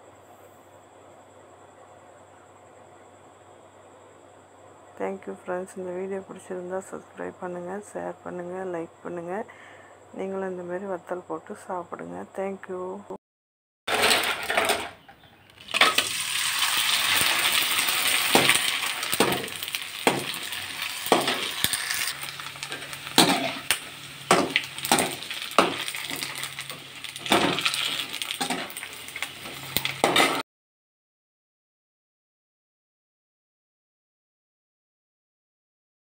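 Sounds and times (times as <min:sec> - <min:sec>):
food sizzling in hot oil: 0:13.9 - 0:30.4.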